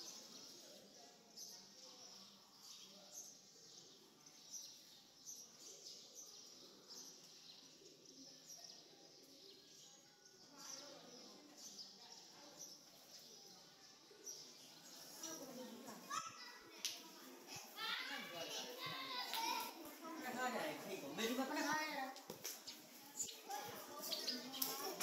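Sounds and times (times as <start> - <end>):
small birds chirping: 0.0 - 25.0
murmur of voices: 5.6 - 25.0.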